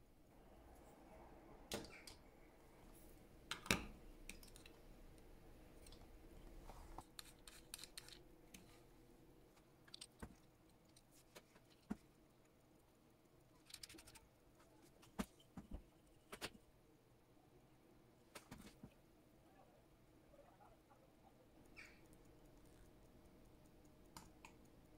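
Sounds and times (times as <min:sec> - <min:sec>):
small metallic clicks and taps: 0:09.6 - 0:12.6, 0:21.6 - 0:24.9.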